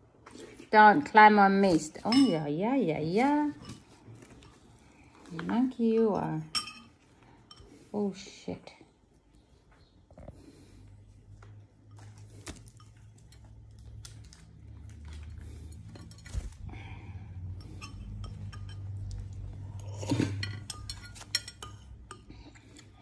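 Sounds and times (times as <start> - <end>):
cutlery and dishes clinking: 2.0 - 2.5, 6.2 - 7.8, 17.6 - 19.0, 19.8 - 22.9.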